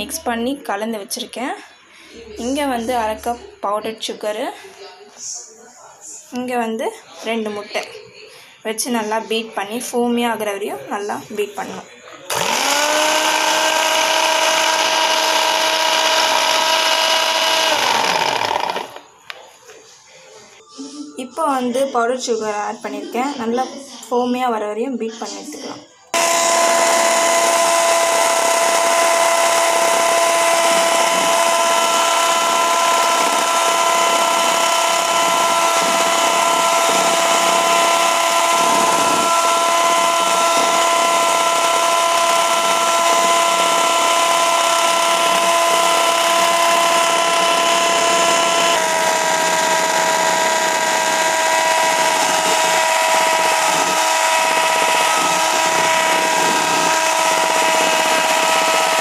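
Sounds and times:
electric hand mixer whining: 0:00.0 - 0:00.2, 0:12.3 - 0:19.4, 0:26.1 - 0:59.0.

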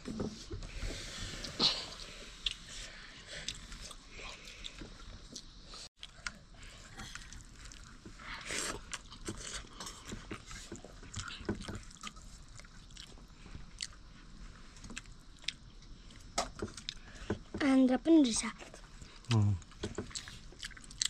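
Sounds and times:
person chewing food: 0:01.4 - 0:17.4, 0:19.0 - 0:21.0.

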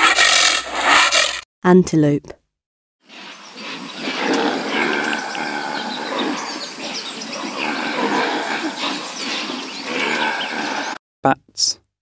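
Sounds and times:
animal calls and chirps: 0:03.1 - 0:11.0.

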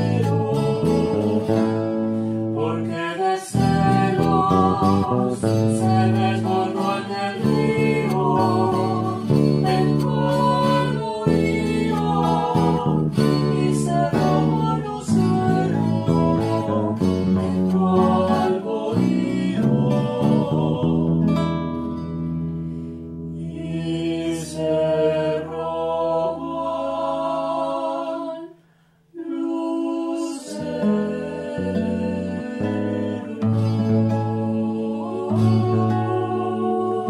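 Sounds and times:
electric bass: 0:00.0 - 0:23.8
acoustic guitars: 0:00.0 - 0:27.6, 0:30.2 - 0:37.0
woman singing: 0:02.6 - 0:21.0, 0:29.2 - 0:37.0.

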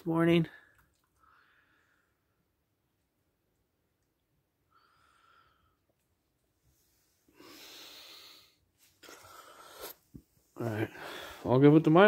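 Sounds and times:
person breathing: 0:01.2 - 0:02.5, 0:04.7 - 0:06.0, 0:06.6 - 0:11.5.

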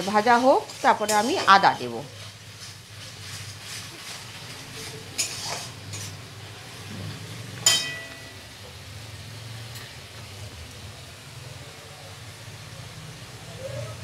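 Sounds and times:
metal spatula scraping pan: 0:00.0 - 0:06.8
faint sizzling: 0:00.0 - 0:14.0
spatula clinking against pan: 0:07.6 - 0:08.4.

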